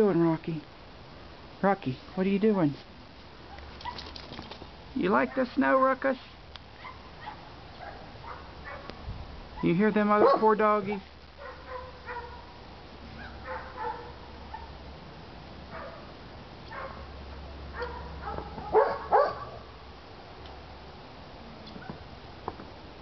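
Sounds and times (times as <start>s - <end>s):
dogs barking and yipping: 3.5s - 4.6s, 6.8s - 9.0s, 9.6s - 14.8s, 15.7s - 16.1s, 16.7s - 19.8s.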